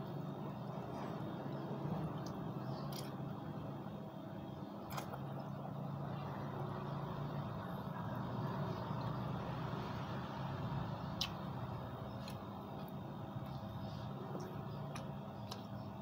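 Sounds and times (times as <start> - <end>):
vehicle engine humming: 0.0 - 16.0.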